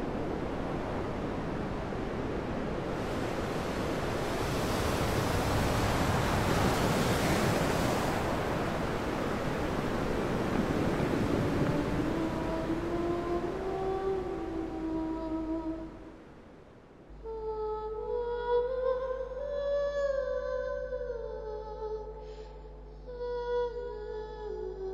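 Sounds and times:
ocean waves washing in: 0.0s - 17.1s.

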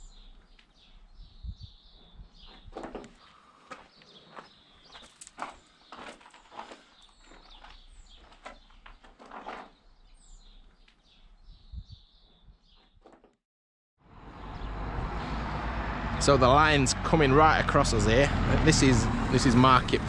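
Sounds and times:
small birds chirping: 0.0s - 13.0s, 14.4s - 15.3s.

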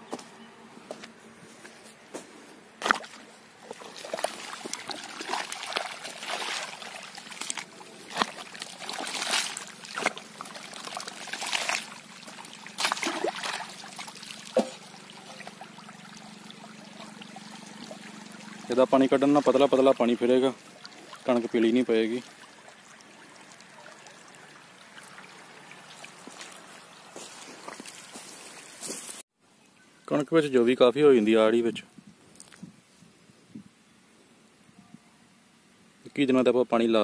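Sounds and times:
water gushing and splashing: 2.8s - 28.6s.

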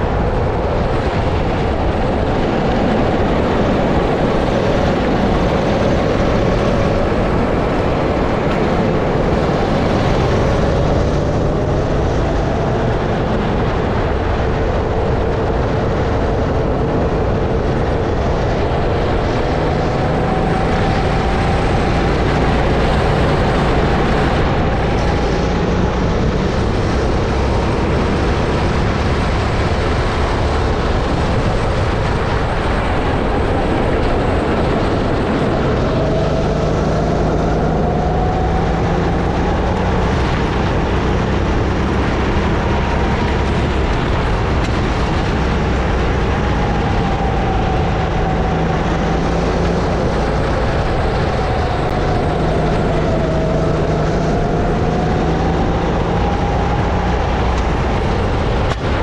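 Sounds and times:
steady rushing noise: 0.0s - 59.0s
kart engine revving: 16.9s - 59.0s.

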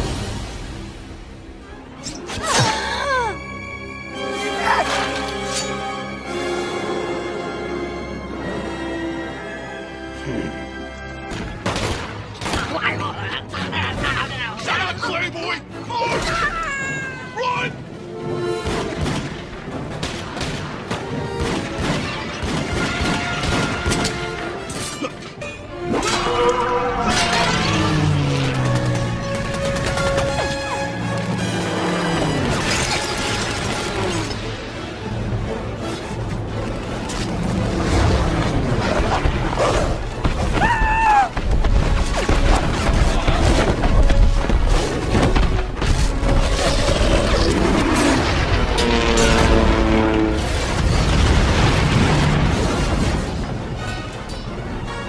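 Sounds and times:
orchestral music: 0.0s - 55.0s
din of battle: 11.3s - 16.6s
rapid gunshots: 18.6s - 24.0s, 28.5s - 30.9s
booms and crashes: 50.4s - 53.8s.

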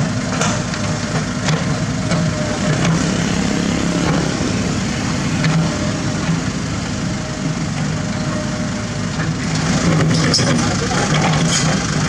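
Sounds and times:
excavator diesel engine running: 0.0s - 12.0s.

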